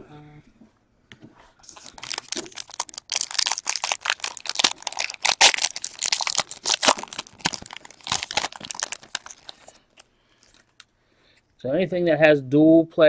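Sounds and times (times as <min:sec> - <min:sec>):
foil wrapper tearing and crinkling: 0:01.7 - 0:10.6.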